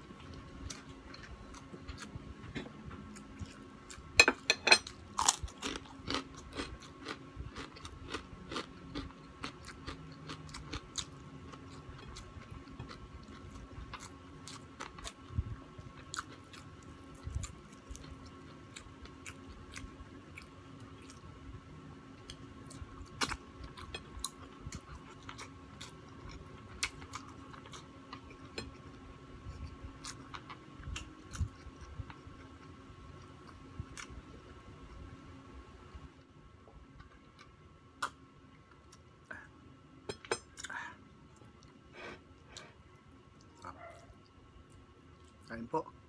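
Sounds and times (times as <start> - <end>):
faint steady hum: 0.0 - 46.0
close chewing with crunches: 4.9 - 21.4, 22.2 - 34.2.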